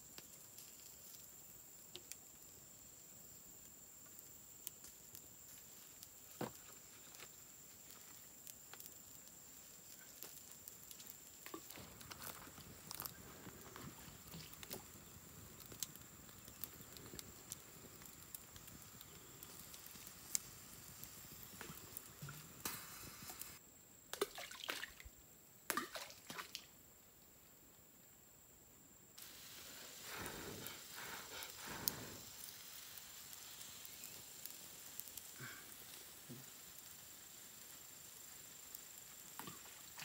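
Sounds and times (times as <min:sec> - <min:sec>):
campfire crackling and popping: 0:00.0 - 0:25.0, 0:29.2 - 0:40.0
water dripping and splashing: 0:10.1 - 0:20.4, 0:24.1 - 0:26.7, 0:38.7 - 0:40.0.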